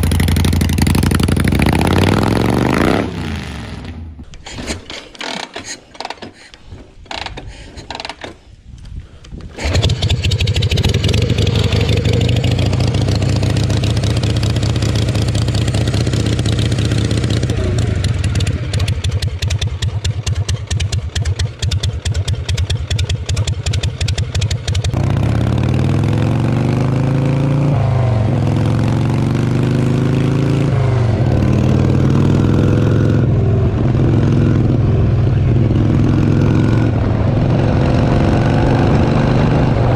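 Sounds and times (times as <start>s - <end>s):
motorcycle engine idling: 0.0s - 1.6s, 10.0s - 25.0s
motorcycle accelerating through gears: 0.0s - 4.2s, 9.6s - 39.9s.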